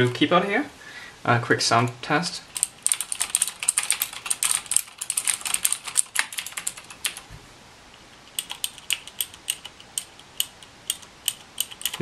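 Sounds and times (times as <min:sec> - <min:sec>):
mechanical keyboard typing: 0:02.5 - 0:07.3, 0:08.0 - 0:12.0.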